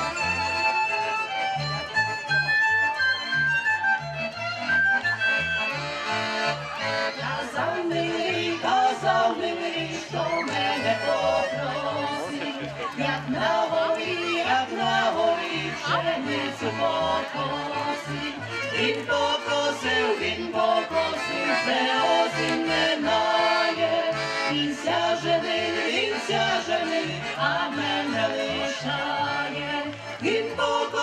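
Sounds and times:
folk band music: 0.0 - 31.0
person singing: 7.6 - 31.0.

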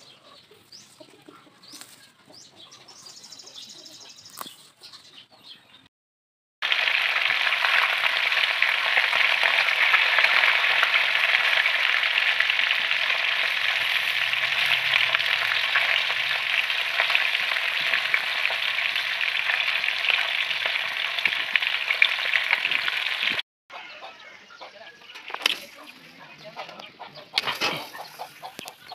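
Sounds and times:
fish frying in oil: 6.6 - 23.4.

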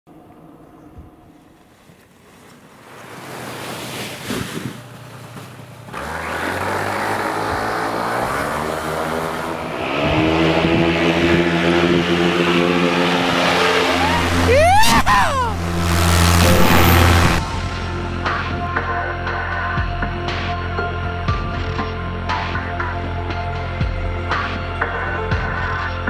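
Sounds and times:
vehicle engine accelerating: 5.8 - 19.0.

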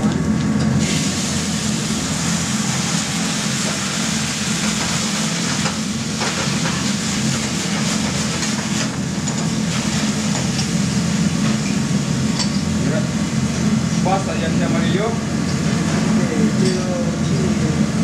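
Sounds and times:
steady low hum: 0.0 - 18.0
wine sizzling in a hot pan: 0.8 - 14.6.

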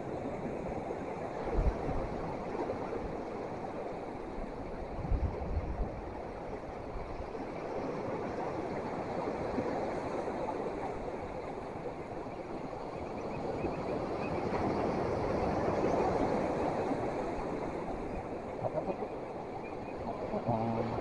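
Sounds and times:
surf washing: 0.0 - 21.0
wind buffeting microphone: 1.3 - 3.4, 4.4 - 7.6.

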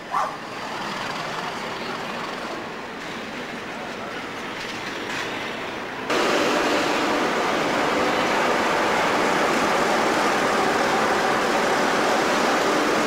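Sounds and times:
diesel locomotive running slowly: 0.0 - 13.0
diesel locomotive engine idling: 5.5 - 13.0.

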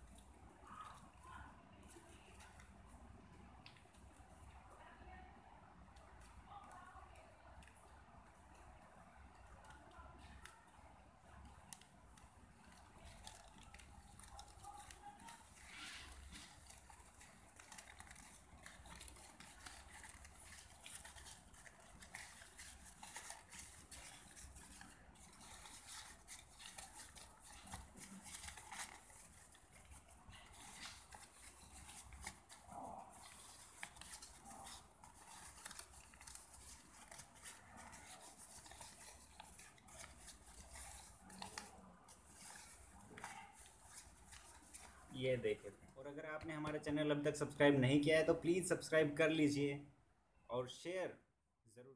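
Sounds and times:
paper crinkling and rustling: 8.5 - 45.9.

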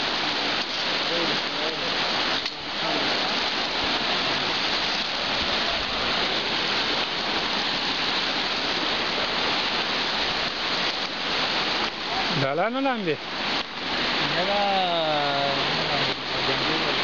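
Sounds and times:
river rushing: 0.0 - 17.0.

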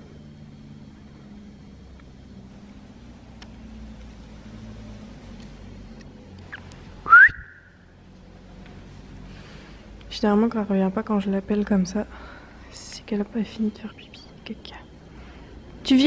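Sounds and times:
person whistling: 7.0 - 7.8.

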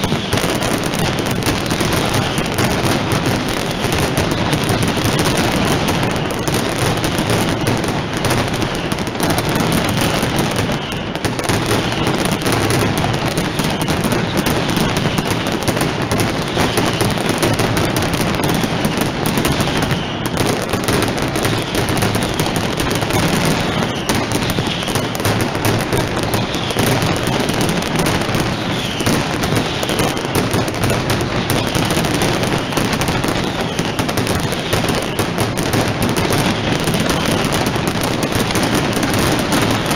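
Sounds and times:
firecrackers barrage: 0.0 - 39.9.

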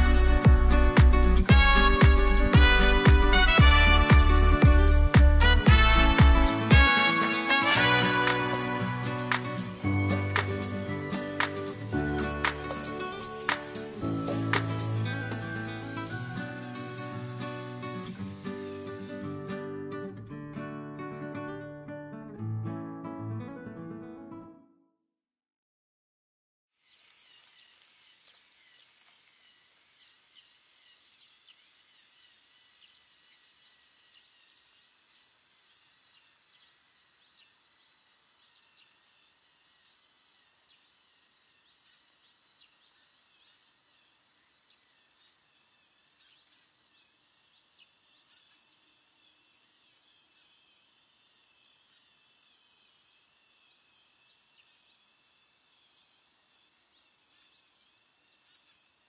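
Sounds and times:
steady high hiss: 0.0 - 19.5.

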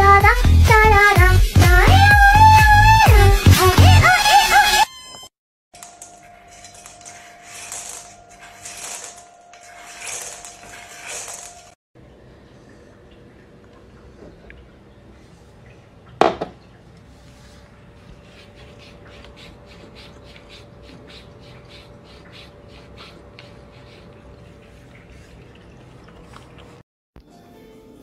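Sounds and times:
cat lapping water: 12.4 - 26.8
glass set down on wooden floor: 16.2 - 16.6.

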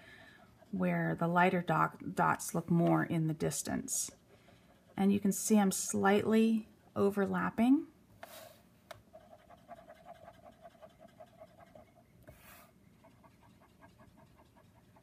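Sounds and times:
soft hisses: 8.2 - 8.7
marker nib scratching card: 8.2 - 15.0.

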